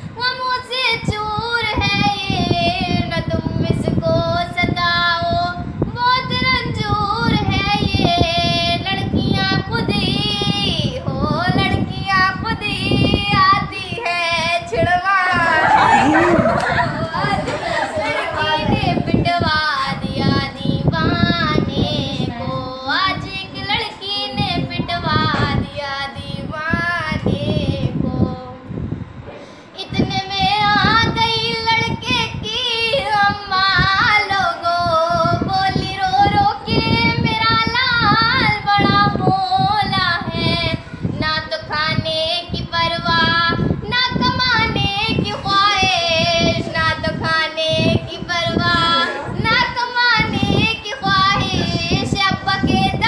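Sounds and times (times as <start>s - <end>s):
girl singing: 0.0s - 28.9s, 29.8s - 53.0s.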